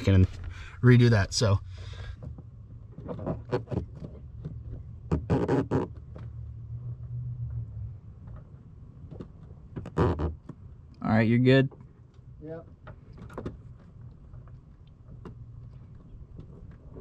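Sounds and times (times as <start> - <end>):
steady low hum: 0.0 - 3.0.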